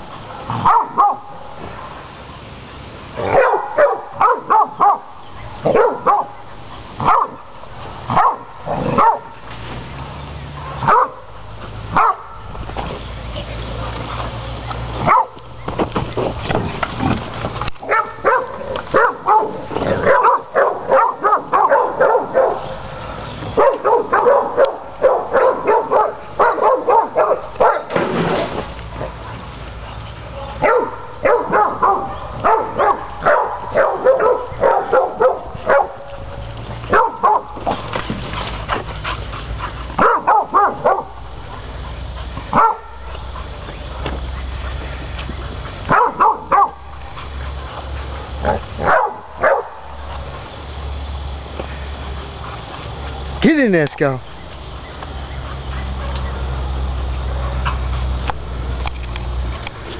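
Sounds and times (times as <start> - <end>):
dog barking fast: 0.6 - 1.3, 3.2 - 6.4, 7.0 - 7.4, 8.1 - 9.3, 10.8 - 11.2, 11.9 - 12.4, 15.0 - 15.4, 17.8 - 22.6, 23.6 - 27.9, 30.6 - 36.0, 36.9 - 37.5, 40.0 - 41.2, 42.5 - 43.0, 45.9 - 46.9, 48.4 - 49.8.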